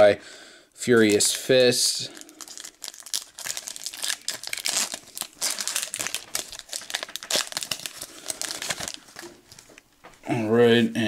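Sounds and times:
foil wrapper crinkling and tearing: 0.9s - 9.8s.

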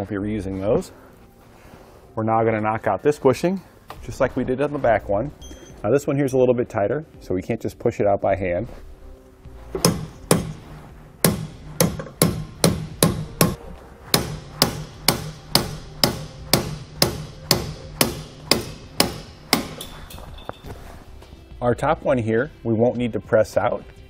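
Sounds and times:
hammer striking metal socket: 14.2s - 20.6s.

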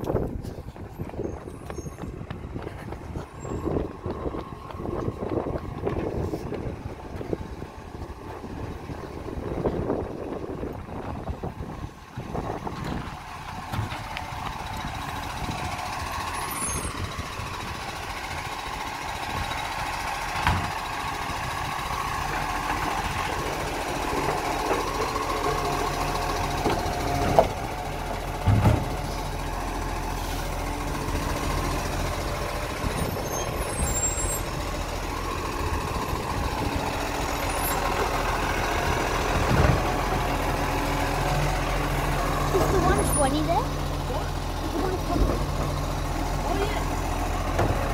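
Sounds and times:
garbage truck engine running: 0.0s - 47.9s.

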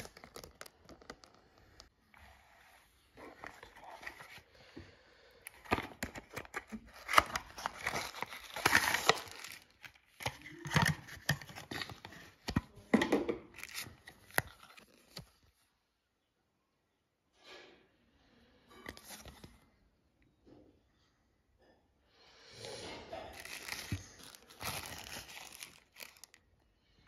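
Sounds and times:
plastic and card crinkling: 0.0s - 4.6s, 5.5s - 15.6s, 23.1s - 26.5s.

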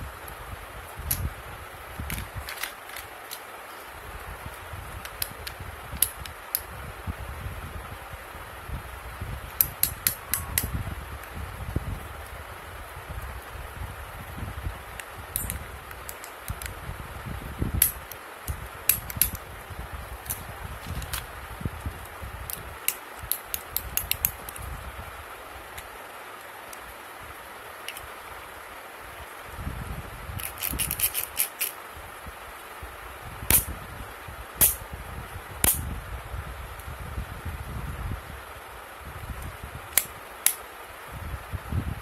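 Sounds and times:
fingers rustling on toy: 2.1s - 3.9s, 20.2s - 21.3s, 30.4s - 31.8s
plastic fidget pad clicking: 15.4s - 16.8s, 30.4s - 31.8s.

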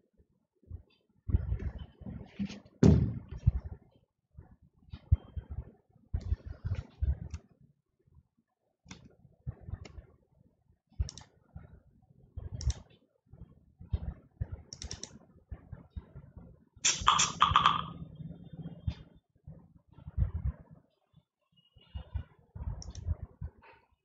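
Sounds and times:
computer keyboard typing: 16.9s - 18.0s.

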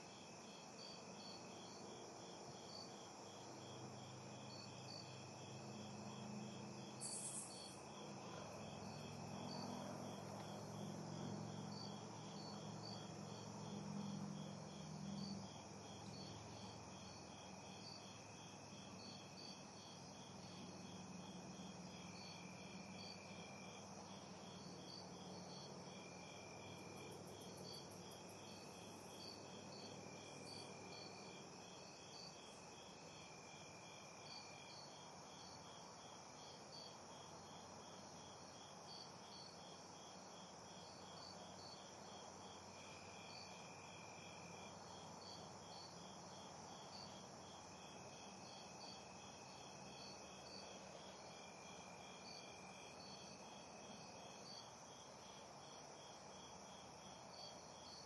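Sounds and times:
crickets chirping: 0.0s - 58.0s
insect buzzing trills: 7.0s - 7.8s.

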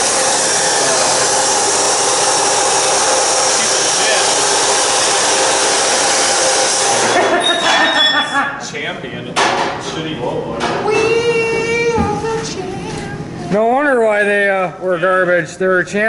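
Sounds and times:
blower machine whooshing: 0.0s - 7.4s.

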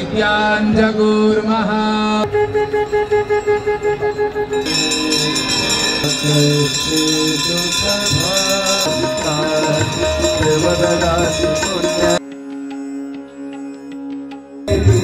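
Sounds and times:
held instrumental tones: 2.3s - 12.2s, 14.7s - 15.0s
person singing: 4.7s - 12.2s, 14.7s - 15.0s.

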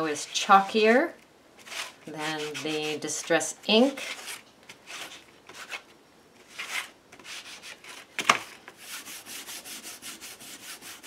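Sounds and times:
ink pad scrubbing on card: 1.6s - 4.3s.

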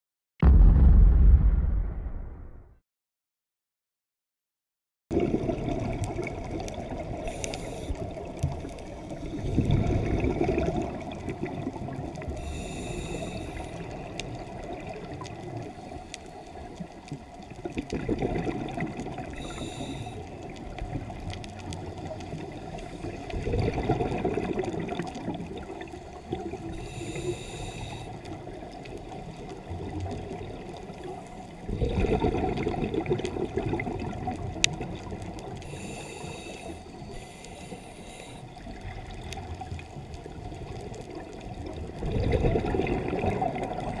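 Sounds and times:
exhaled bubbles gushing: 5.1s - 7.4s, 8.0s - 12.5s, 16.9s - 19.7s, 20.4s - 26.8s, 28.4s - 35.7s, 38.6s - 44.0s
hissing regulator inhalations: 7.2s - 8.1s, 12.4s - 13.9s, 19.4s - 20.2s, 26.7s - 28.2s, 35.6s - 38.6s.

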